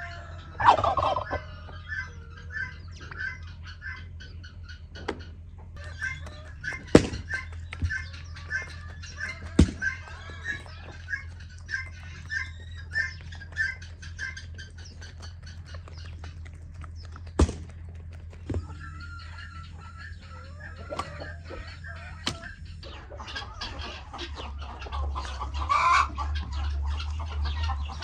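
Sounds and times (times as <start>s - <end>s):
chickens clucking: 0.0s - 28.0s
steady low hum: 0.0s - 28.0s
sharp knocks: 6.0s - 10.0s, 17.4s - 17.8s.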